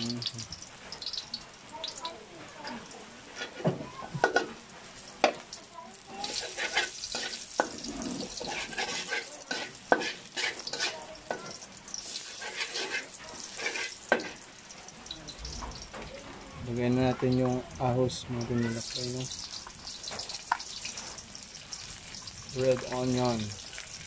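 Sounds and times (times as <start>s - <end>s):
garlic sizzling in hot oil: 0.0s - 24.0s
metal spatula scraping a pan: 3.2s - 4.5s, 6.2s - 14.5s.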